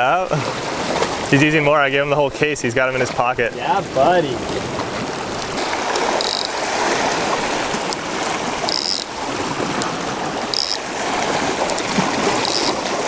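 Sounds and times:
waves washing over rocks: 0.0s - 13.0s
high-pitched squeaks: 8.7s - 9.1s, 12.4s - 12.8s.

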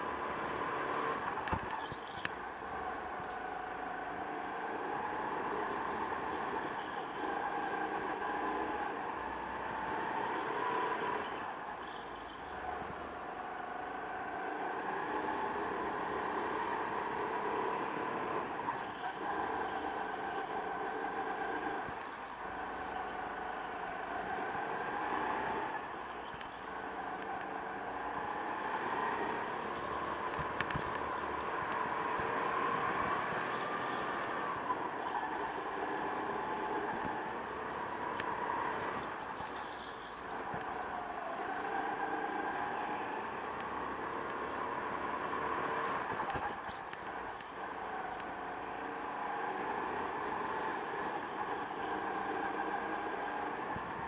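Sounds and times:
go-kart engine revving: 0.0s - 54.0s.

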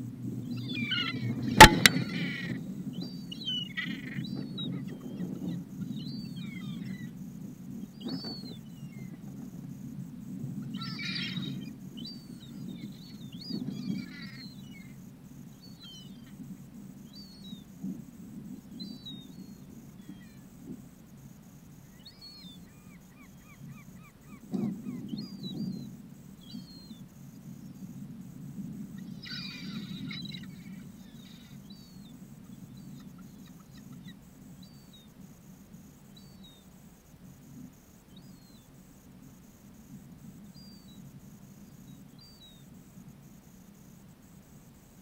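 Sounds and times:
gulls calling: 0.5s - 7.0s, 29.0s - 35.0s
sharp click: 1.6s - 2.2s.

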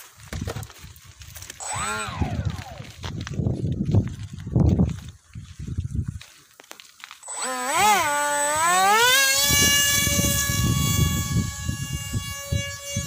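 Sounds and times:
electric motor and propeller whine: 0.5s - 3.5s, 7.2s - 13.0s.

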